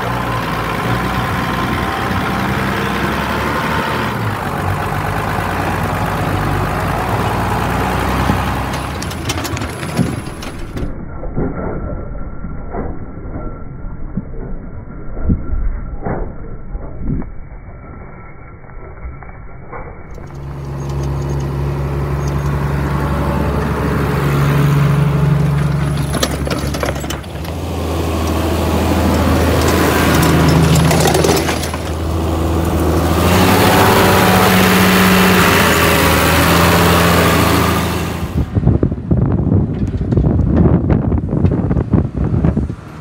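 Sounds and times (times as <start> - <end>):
tractor engine running under load: 0.0 - 11.0, 20.1 - 43.0.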